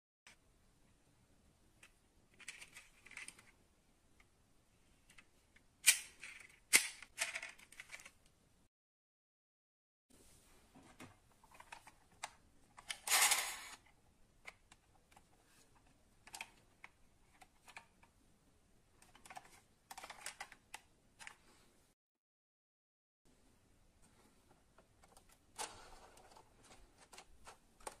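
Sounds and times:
small clicks and taps of model: 0:14.4 - 0:18.2.

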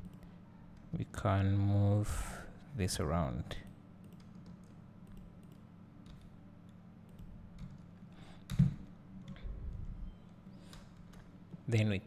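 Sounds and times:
low steady hum: 0:00.0 - 0:12.0
computer mouse clicks: 0:04.0 - 0:06.3.

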